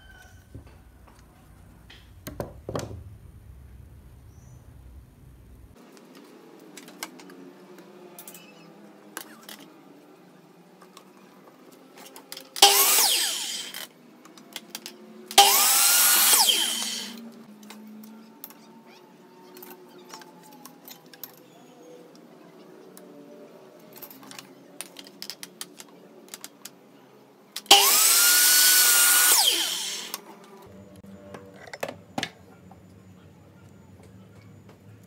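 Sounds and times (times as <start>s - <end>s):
miter saw cutting wood: 12.6s - 13.9s, 15.3s - 17.4s, 27.7s - 30.3s.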